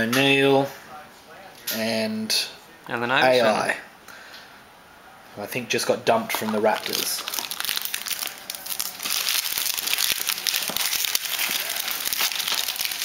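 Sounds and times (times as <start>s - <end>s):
foil wrapper crinkling and tearing: 6.4s - 13.0s.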